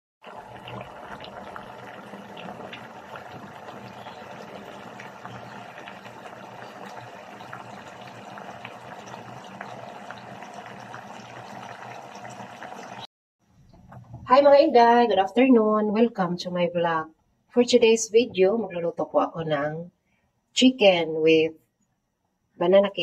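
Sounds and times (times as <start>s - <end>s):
sauce bubbling and popping: 0.2s - 13.1s.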